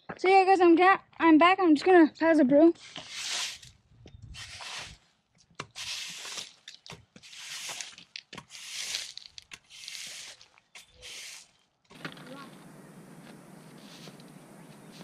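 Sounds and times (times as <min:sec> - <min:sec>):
push broom sweeping grit on pavers: 0:02.8 - 0:05.0, 0:05.6 - 0:06.6, 0:07.2 - 0:11.6, 0:13.6 - 0:15.0.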